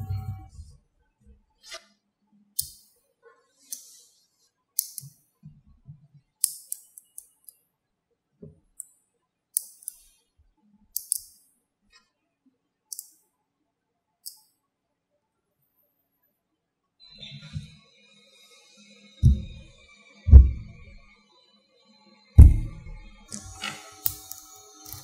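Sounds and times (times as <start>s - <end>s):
magnetic balls clicking together: 4.8s - 5.2s, 6.4s - 7.5s, 9.6s - 10.1s, 10.9s - 11.4s, 23.3s - 25.0s
dull handling knocks: 20.3s - 21.0s.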